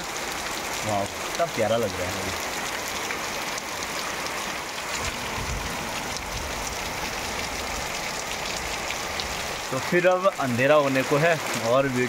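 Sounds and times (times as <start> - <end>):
heavy rain falling: 0.0 - 12.0.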